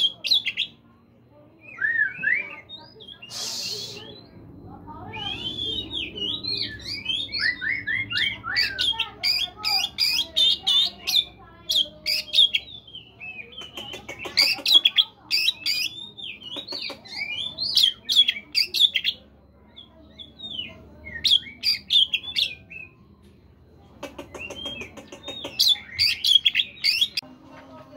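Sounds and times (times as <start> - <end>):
bird singing whistled song: 1.6 - 13.8, 24.1 - 27.2.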